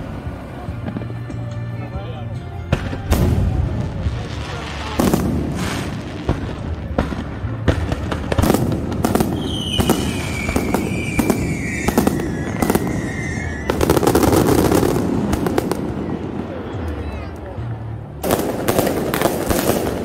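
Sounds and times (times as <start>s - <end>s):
fireworks bursting and crackling: 2.7s - 20.0s
descending firework whistle: 9.3s - 15.0s.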